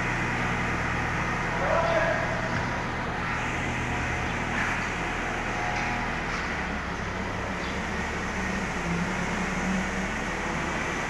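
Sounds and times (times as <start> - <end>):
tractor engine running: 0.0 - 11.0.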